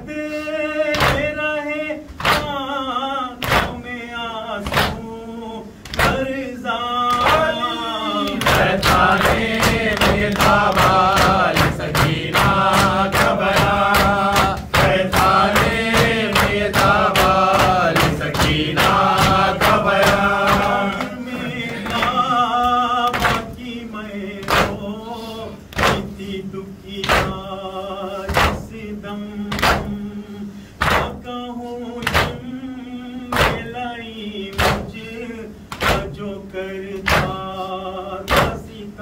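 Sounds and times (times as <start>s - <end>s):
men chanting a lament: 0.0s - 39.0s
hands beating on chests: 8.4s - 20.7s.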